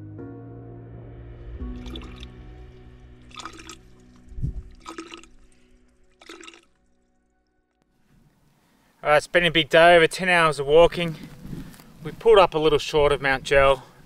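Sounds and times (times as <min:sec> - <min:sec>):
background music: 0:00.0 - 0:12.0
water squirting into plastic bottle: 0:01.8 - 0:02.4, 0:03.3 - 0:06.8.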